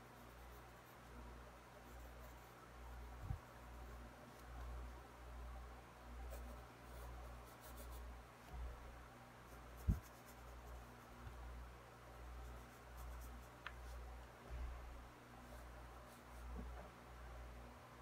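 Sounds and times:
soft pulsing low rumble: 0.1s - 18.0s
pencil scratching on paper: 1.8s - 2.6s, 6.3s - 8.0s, 9.5s - 11.1s.

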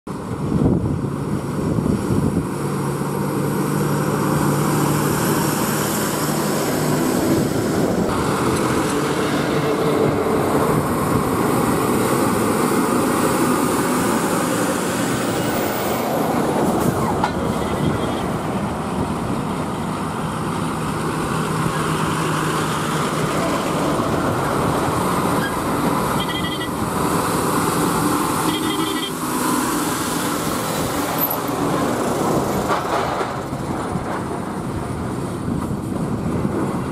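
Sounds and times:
diesel lorries passing: 0.1s - 36.9s
short horn toots: 28.5s - 29.2s.

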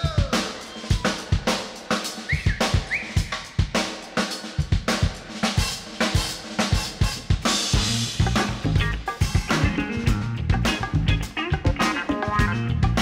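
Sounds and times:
drum kit playing: 0.0s - 13.0s.

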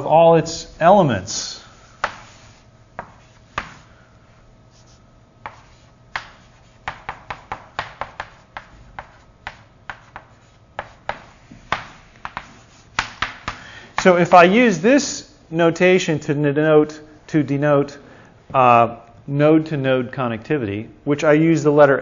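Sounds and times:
writing taps on a board: 5.4s - 14.1s.

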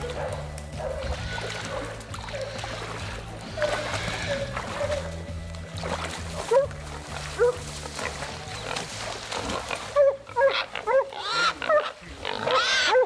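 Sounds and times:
hog squealing: 3.5s - 5.1s, 10.4s - 13.0s.

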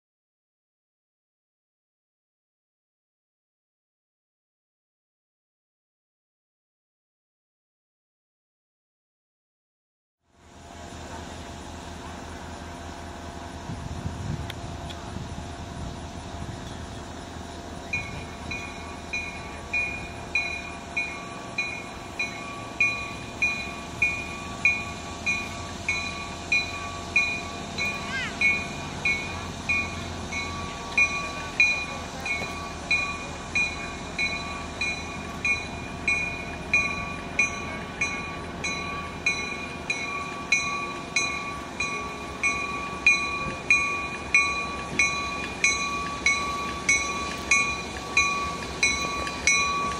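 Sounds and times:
diesel engine running low: 10.2s - 49.9s
locomotive bell ringing: 16.6s - 49.9s.

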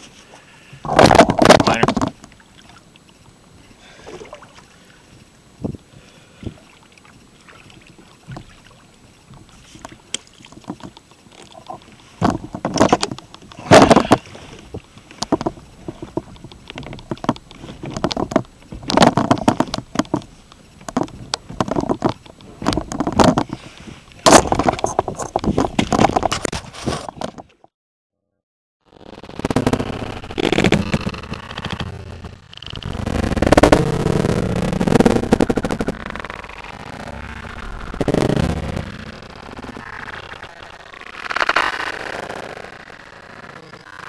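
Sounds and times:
water splashing and sloshing: 0.0s - 27.6s.

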